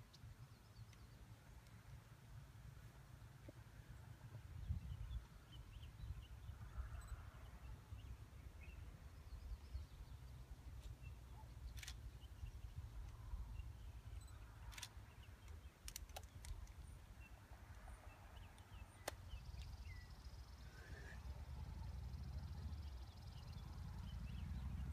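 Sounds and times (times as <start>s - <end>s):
faint chirps: 11.3s - 15.4s, 18.5s - 24.6s
sharp clicks: 11.6s - 12.1s, 14.3s - 16.8s, 18.5s - 20.3s.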